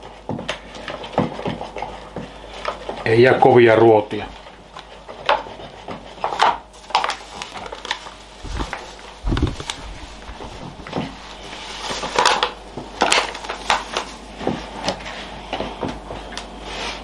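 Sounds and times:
paper bag crinkling: 0:06.7 - 0:14.2
dull thumps: 0:08.4 - 0:11.7.

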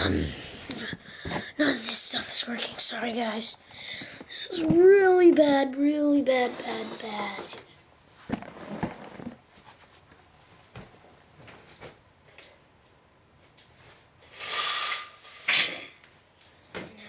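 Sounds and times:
window shade scraping and rattling: 0:06.1 - 0:07.6, 0:08.3 - 0:09.4.

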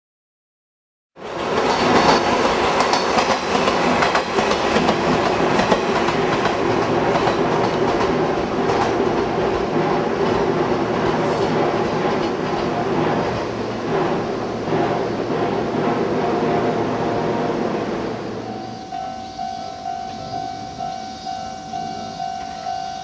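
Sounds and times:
wheels clacking over rail joints: 0:01.2 - 0:16.9
electric train running by: 0:01.2 - 0:23.0.

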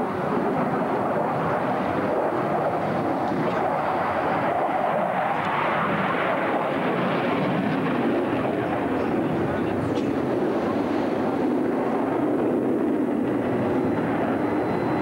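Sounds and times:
fighter jet engine roar: 0:00.0 - 0:15.0.

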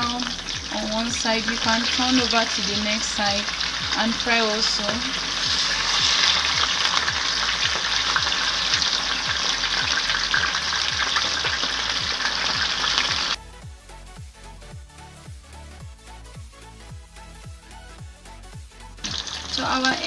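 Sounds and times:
fish sizzling in hot oil: 0:00.0 - 0:13.4, 0:19.0 - 0:20.0
spatula turning food in pan: 0:00.0 - 0:13.4.

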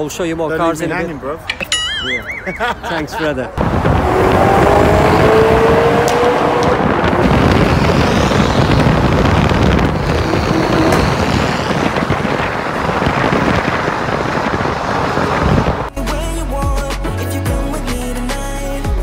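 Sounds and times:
cars driving through tunnel: 0:03.5 - 0:15.9.

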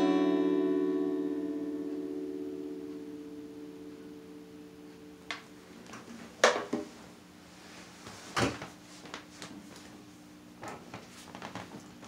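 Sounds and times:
guitar strings ringing faintly: 0:00.0 - 0:06.0.

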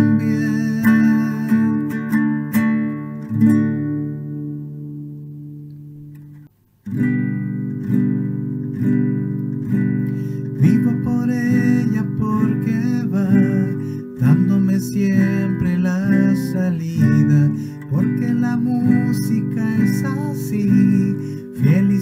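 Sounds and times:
man singing: 0:00.0 - 0:02.3, 0:10.5 - 0:22.0
acoustic guitar strumming: 0:00.0 - 0:22.0.

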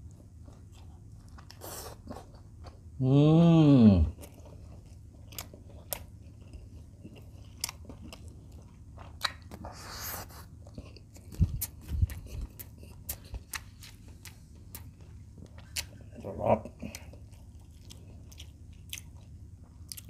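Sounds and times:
chewing food: 0:00.0 - 0:02.9, 0:04.1 - 0:20.0
wet mouth clicks and lip smacks: 0:09.2 - 0:09.6.

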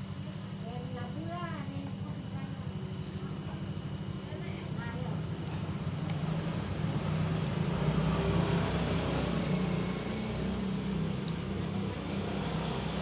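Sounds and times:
engine rumbling: 0:00.0 - 0:13.0.

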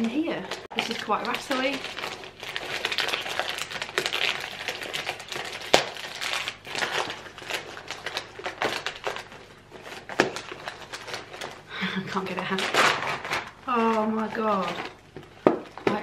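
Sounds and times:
wrapping paper crinkling and tearing: 0:00.0 - 0:16.0.

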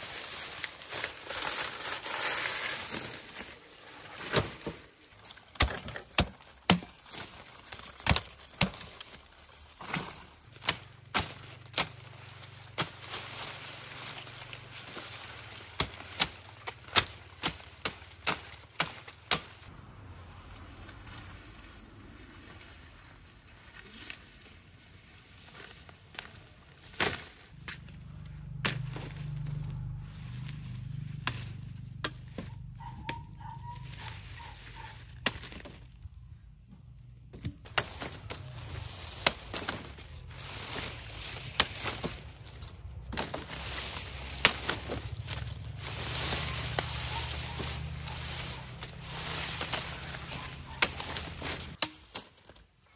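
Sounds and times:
rustling: 0:00.0 - 0:19.7, 0:37.6 - 0:51.8
blade chopping sugarcane: 0:05.4 - 0:09.2, 0:09.8 - 0:13.2, 0:15.3 - 0:19.6, 0:37.4 - 0:40.1, 0:40.8 - 0:42.4, 0:43.1 - 0:52.3.

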